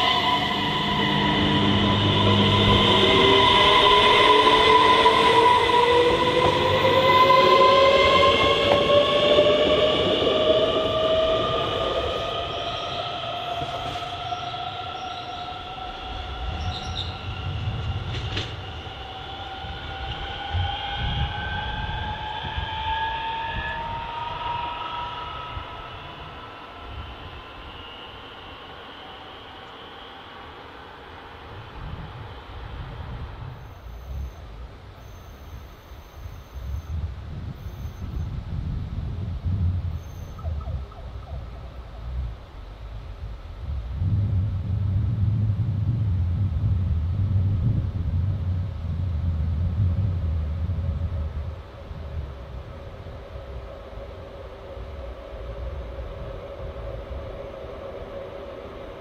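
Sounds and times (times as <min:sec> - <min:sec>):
electric train motor whine: 0:00.0 - 0:38.3
wheels rumbling on track: 0:00.0 - 0:59.0.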